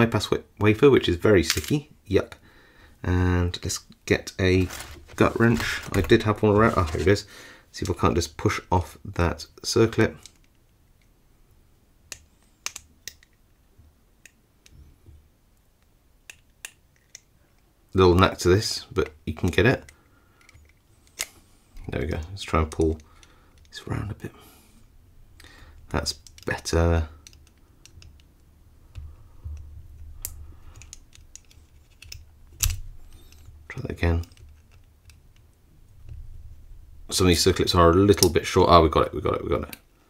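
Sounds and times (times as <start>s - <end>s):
soft handling bumps: 4.5s - 7.2s
small metal clicks and scrapes: 27.2s - 35.5s.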